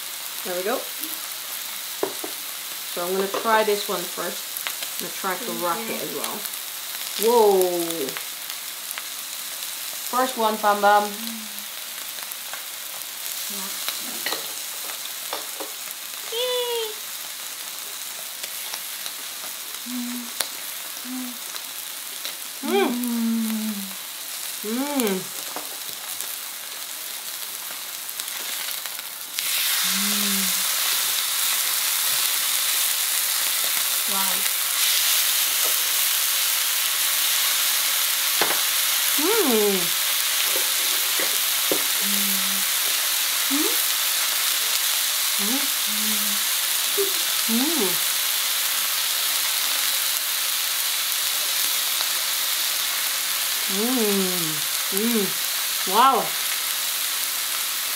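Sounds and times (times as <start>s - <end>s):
steaks sizzling on grill: 0.0s - 57.9s
people humming while eating: 11.1s - 11.7s, 19.8s - 20.4s, 21.0s - 21.6s, 22.6s - 24.0s, 24.6s - 25.3s, 29.7s - 30.9s, 39.2s - 40.0s, 41.8s - 44.0s, 45.4s - 48.1s, 53.6s - 55.4s.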